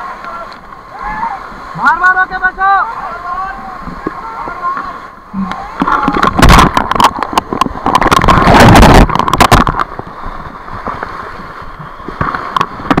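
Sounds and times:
whitewater rapids rushing: 0.0 - 13.0
water striking camera crackles: 3.8 - 13.0.

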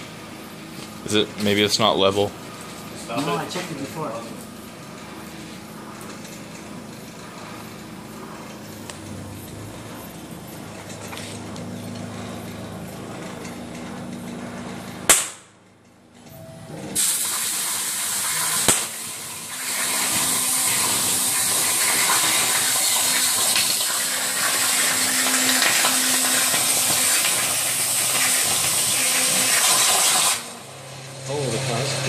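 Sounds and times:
sharp pop: 15.1 - 15.5, 18.6 - 19.0
plasma torch hissing: 17.0 - 30.7.

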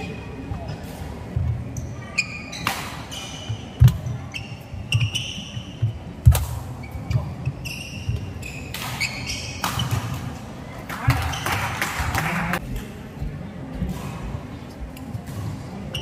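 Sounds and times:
shoes squeaking: 1.5 - 10.3
racket hitting shuttlecock: 6.2 - 6.7.

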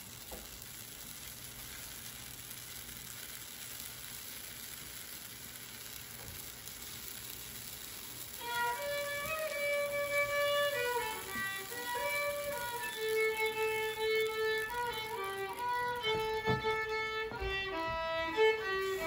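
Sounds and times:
omelette sizzling in a pan: 0.0 - 19.0
background music with violin: 8.4 - 19.0.

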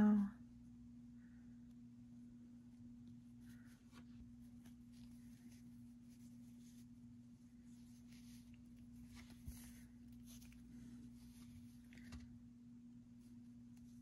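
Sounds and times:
rustling of yarn and needle: 2.6 - 12.5, 13.1 - 14.0.

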